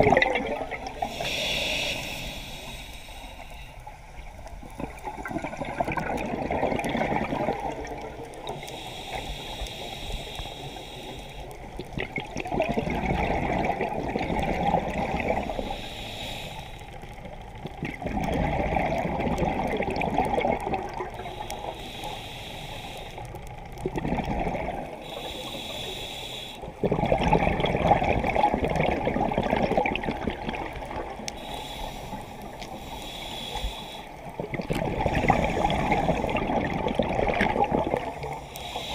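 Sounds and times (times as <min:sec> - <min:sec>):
bubbling exhaust: 0:00.0 - 0:01.7, 0:04.6 - 0:09.0, 0:11.8 - 0:16.0, 0:17.2 - 0:22.6, 0:23.7 - 0:26.0, 0:26.7 - 0:38.9
regulator inhalation hiss: 0:01.0 - 0:04.1, 0:08.5 - 0:11.7, 0:15.4 - 0:17.0, 0:21.2 - 0:23.4, 0:25.0 - 0:26.8, 0:31.3 - 0:34.3, 0:35.1 - 0:36.4, 0:38.2 - 0:38.9.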